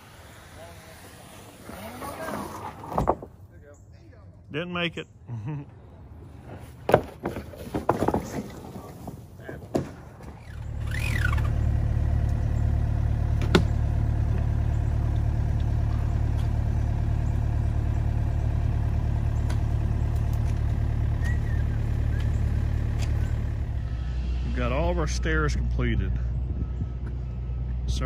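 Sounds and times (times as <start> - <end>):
timber knocks: 2.8 - 3.4
heavy equipment engine rumbling: 8.7 - 28.0.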